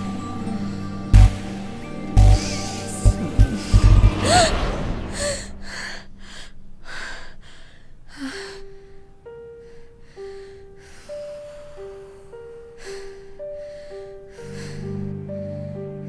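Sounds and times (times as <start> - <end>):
girl gasping: 3.6 - 9.0
quick heavy breaths: 3.6 - 15.8.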